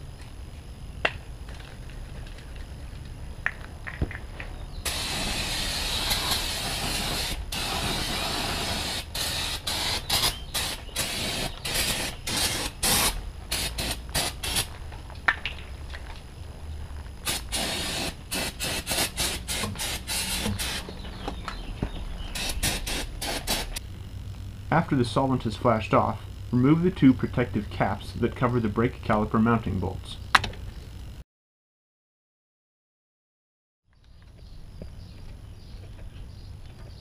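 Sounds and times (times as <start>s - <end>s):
aerosol can spraying: 4.8s - 14.7s, 17.2s - 21.0s, 22.3s - 23.8s.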